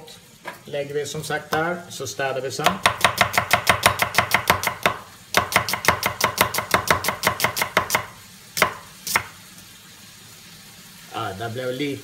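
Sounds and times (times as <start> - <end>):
knife chopping on cutting board: 2.6 - 9.4.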